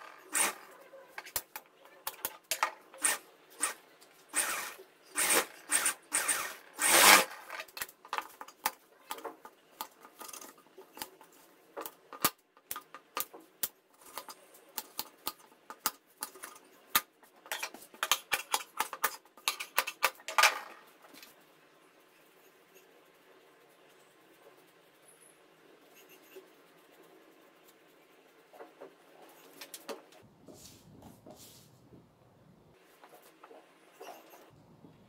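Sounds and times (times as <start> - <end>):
swishes of fabric being handled: 30.4 - 31.8.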